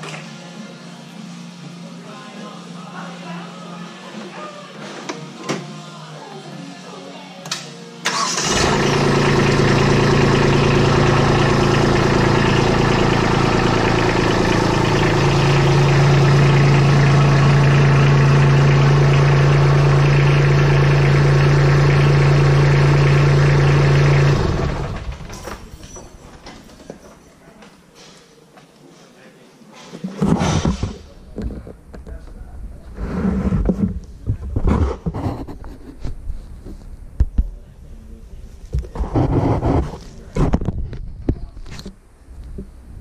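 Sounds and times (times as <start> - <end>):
tractor diesel engine running: 8.1 - 25.8.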